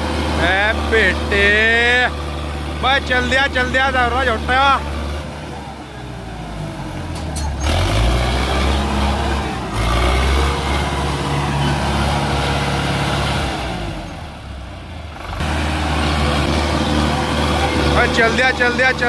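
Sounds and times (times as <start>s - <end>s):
tractor diesel engine revving: 0.0s - 19.0s.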